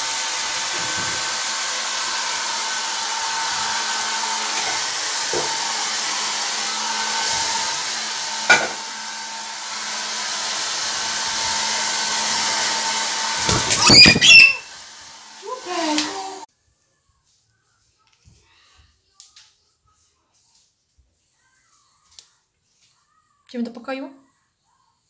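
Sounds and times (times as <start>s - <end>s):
hair dryer blowing: 0.0s - 16.5s.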